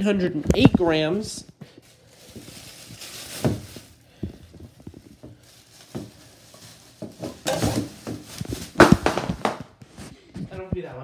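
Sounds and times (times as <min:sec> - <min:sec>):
cans knocking in plastic bag: 0:03.2 - 0:09.8.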